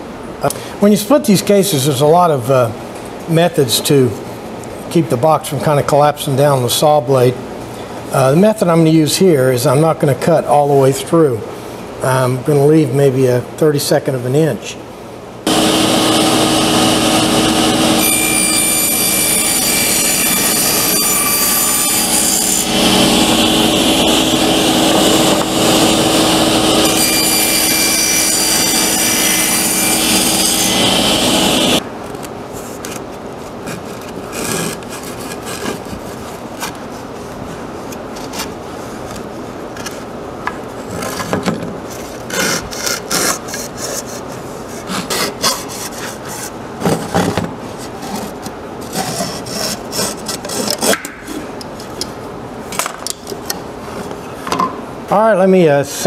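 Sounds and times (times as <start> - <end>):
table saw cutting wood: 15.5 - 31.8.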